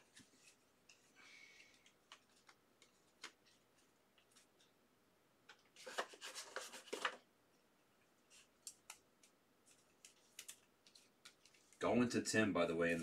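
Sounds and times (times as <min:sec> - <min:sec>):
cards scraping and rustling: 0:00.0 - 0:04.7, 0:05.5 - 0:07.2, 0:09.7 - 0:11.8.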